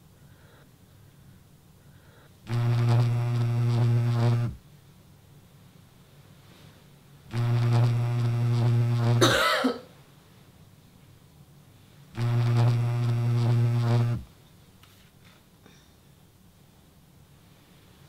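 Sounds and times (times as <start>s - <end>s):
phone vibrating on wooden table: 2.5s - 4.6s, 7.3s - 9.4s, 12.2s - 14.3s.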